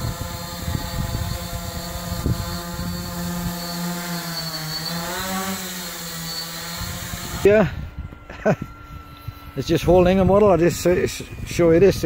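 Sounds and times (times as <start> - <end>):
wind buffeting microphone: 0.0 - 3.6, 6.7 - 12.0
quadcopter propellers whirring: 0.0 - 12.0.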